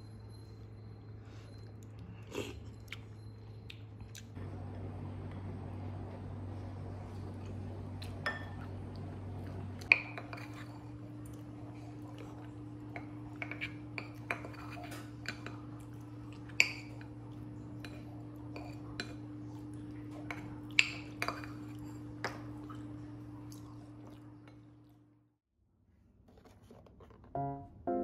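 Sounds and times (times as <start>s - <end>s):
steady low hum: 0.0s - 25.2s
wooden spoon scraping ceramic bowl: 13.4s - 15.2s.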